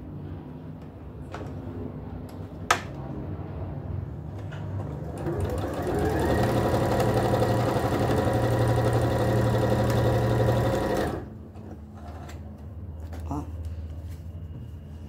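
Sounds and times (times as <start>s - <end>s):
electric sewing machine stitching: 4.9s - 11.3s.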